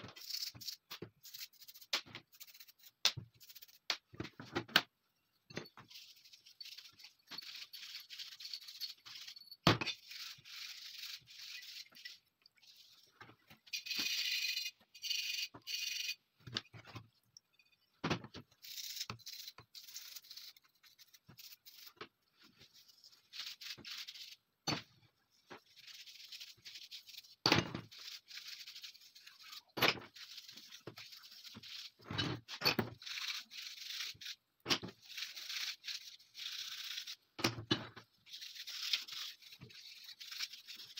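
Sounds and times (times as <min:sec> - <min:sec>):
brush scrubbing steel: 0:05.9 - 0:13.1, 0:18.6 - 0:24.4, 0:25.3 - 0:32.0, 0:32.9 - 0:37.3, 0:38.2 - 0:40.9.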